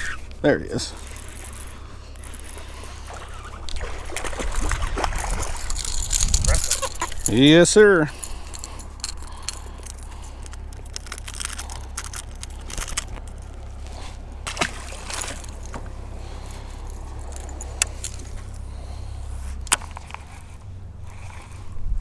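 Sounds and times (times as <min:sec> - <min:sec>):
metallic jingling of fishing lure: 0:00.9 - 0:02.8, 0:05.5 - 0:13.6, 0:15.0 - 0:15.8, 0:16.4 - 0:18.6
light splash of fish: 0:03.0 - 0:06.0, 0:14.4 - 0:15.6.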